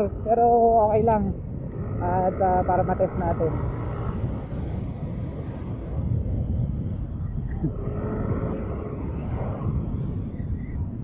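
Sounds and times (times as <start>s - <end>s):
road rumble: 0.0s - 11.0s
wind rushing over microphone: 0.0s - 11.0s.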